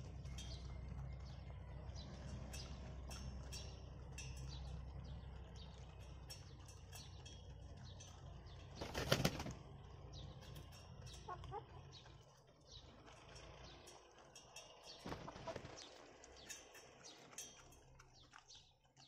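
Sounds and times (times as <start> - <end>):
chicken wings flapping: 8.8 - 9.6, 15.0 - 16.1.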